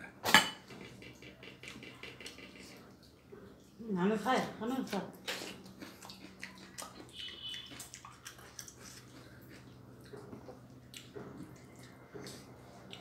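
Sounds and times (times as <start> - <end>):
wet chewing smacks: 5.2 - 13.0.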